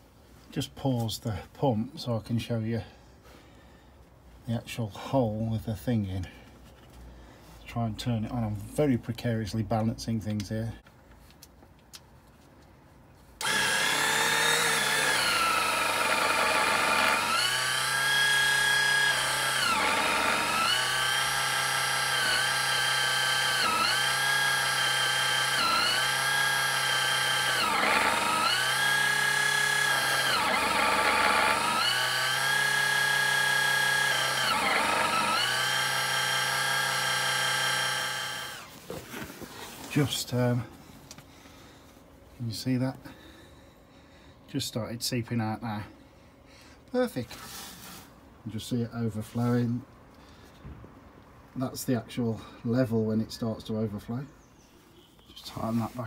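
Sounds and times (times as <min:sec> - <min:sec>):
oil pump motor whine: 0:13.4 - 0:38.7.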